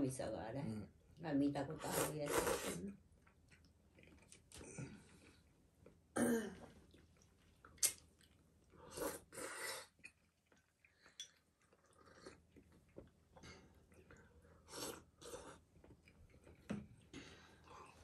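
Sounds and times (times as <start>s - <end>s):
person slurping noodles: 1.9s - 2.8s, 8.8s - 10.0s, 14.6s - 15.6s.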